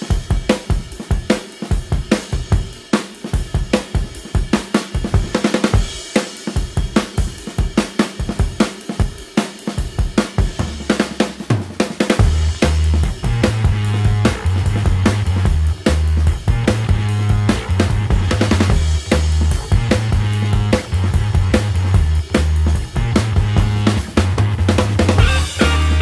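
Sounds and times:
drum kit beat with hi-hat and snare: 0.0s - 26.0s
low bass line: 12.2s - 26.0s.

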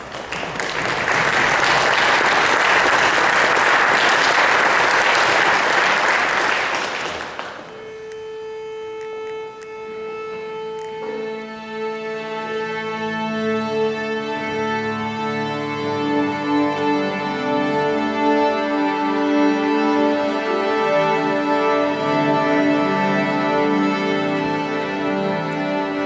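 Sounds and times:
audience applause: 0.0s - 7.8s
bowed strings: 7.3s - 26.0s.

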